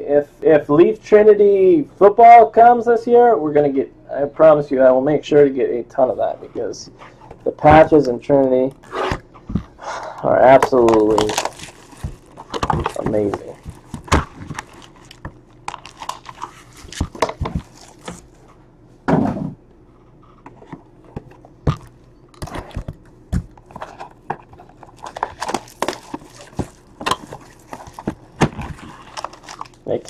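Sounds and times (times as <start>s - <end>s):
card packs tapping and rustling: 10.5s - 18.3s, 21.1s - 30.0s.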